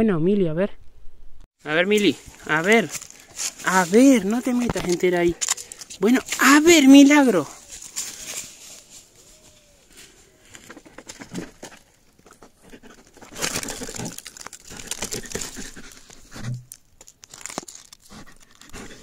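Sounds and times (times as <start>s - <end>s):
dry wood and leaves crackling: 1.8s - 19.0s
dog scratching and digging: 2.2s - 9.4s, 10.7s - 16.6s, 17.4s - 19.0s.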